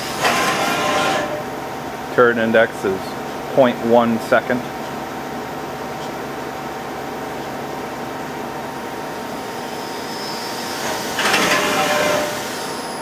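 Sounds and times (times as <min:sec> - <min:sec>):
rough machining noise: 0:00.0 - 0:01.6, 0:08.7 - 0:13.0
lathe humming and whining: 0:00.0 - 0:13.0.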